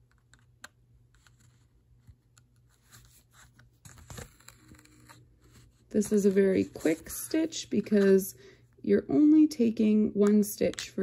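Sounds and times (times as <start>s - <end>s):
scratchy thread rustle: 1.1s - 8.2s.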